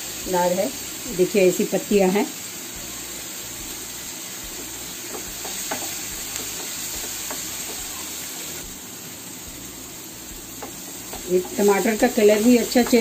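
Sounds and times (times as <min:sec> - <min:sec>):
vegetables sizzling in oil: 0:00.0 - 0:13.0
spatula scraping a pan: 0:10.6 - 0:13.0.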